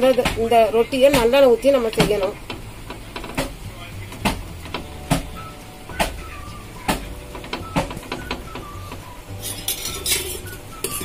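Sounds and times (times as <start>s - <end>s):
fingers patting batter on iron pan: 0.0s - 11.0s
wet scraping in steel bowl: 9.3s - 11.0s.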